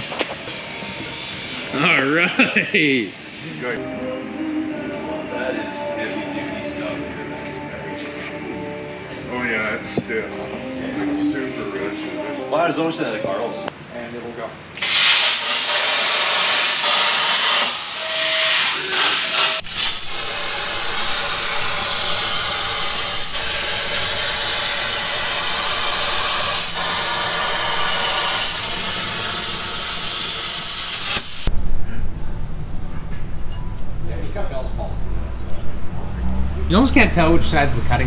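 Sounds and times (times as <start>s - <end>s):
plasma torch cutting hiss: 0.0s - 3.6s, 14.8s - 31.5s.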